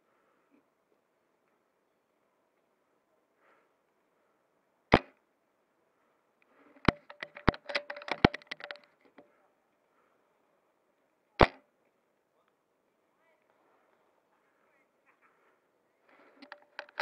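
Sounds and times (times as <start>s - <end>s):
rifle bolt clicks and knocks: 6.8s - 9.3s, 16.4s - 17.0s
airsoft rifle shots: 11.4s - 11.6s.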